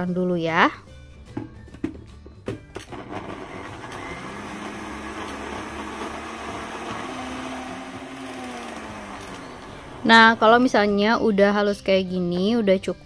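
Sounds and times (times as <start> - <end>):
blender motor whining: 2.8 - 10.6.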